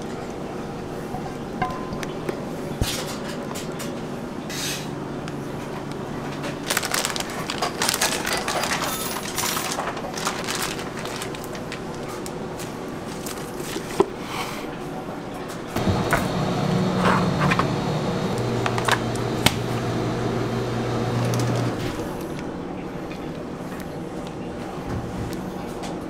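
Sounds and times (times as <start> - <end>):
kitchen hum: 0.0 - 26.0
plastic bag rustling: 6.3 - 14.2.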